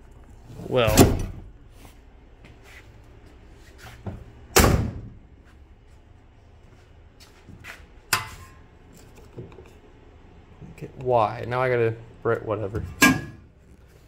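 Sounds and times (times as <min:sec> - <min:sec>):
car door slamming: 0:04.5 - 0:05.1.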